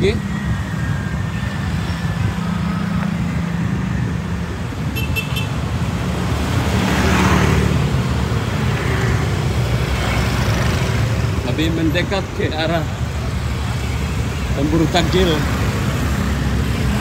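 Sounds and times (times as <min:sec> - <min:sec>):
motor scooters and cars driving past: 0:00.0 - 0:17.0.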